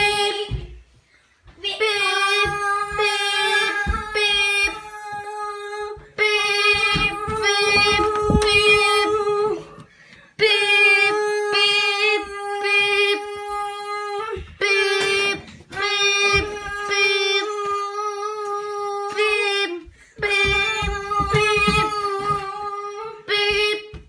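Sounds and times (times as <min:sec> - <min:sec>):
footsteps and handling thumps: 0:00.4 - 0:09.6, 0:19.1 - 0:22.8.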